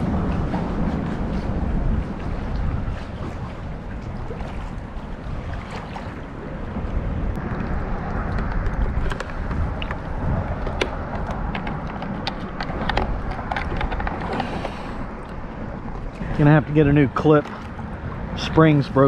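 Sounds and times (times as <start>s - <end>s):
wind rumbling on microphone: 0.0s - 19.0s
clip clicking against plastic hull: 10.6s - 15.4s.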